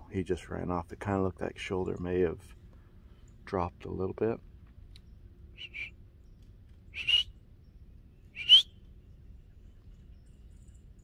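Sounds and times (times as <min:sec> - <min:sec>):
short high whistles: 0:05.6 - 0:06.0, 0:06.9 - 0:07.3, 0:08.4 - 0:08.7.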